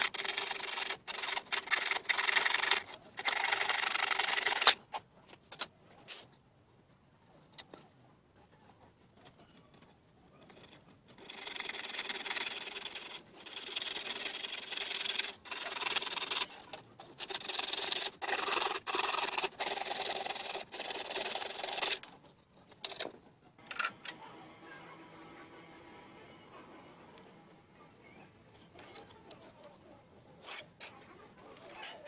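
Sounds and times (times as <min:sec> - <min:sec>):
bow saw cutting wood: 0:00.0 - 0:04.8, 0:11.2 - 0:22.0.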